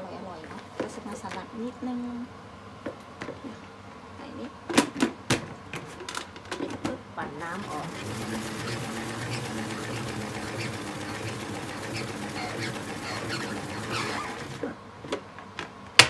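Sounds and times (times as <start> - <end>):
salad spinner whirring: 7.4 - 14.8.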